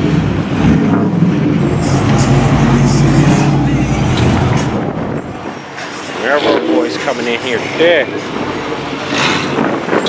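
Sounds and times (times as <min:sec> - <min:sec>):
car engines running low: 0:00.0 - 0:06.2.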